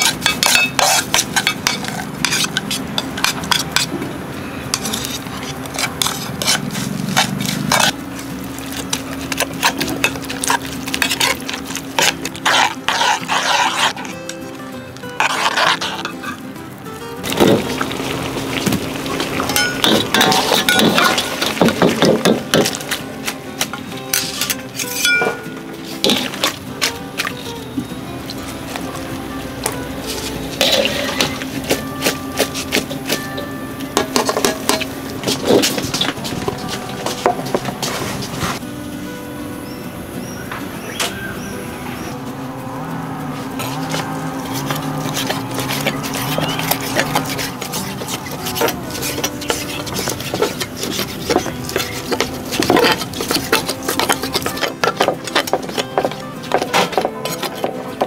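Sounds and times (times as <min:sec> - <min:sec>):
metal skimmer clinking: 0:19.3 - 0:22.8, 0:24.1 - 0:26.6.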